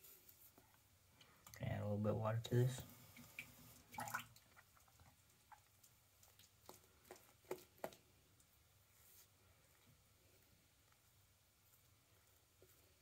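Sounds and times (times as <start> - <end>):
water splash: 3.4 - 4.4.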